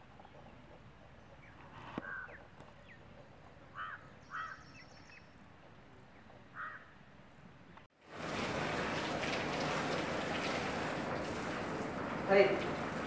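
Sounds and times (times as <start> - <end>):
small birds chirping: 0.0 - 7.0
crows cawing: 2.0 - 2.4, 3.7 - 4.7, 6.6 - 7.0.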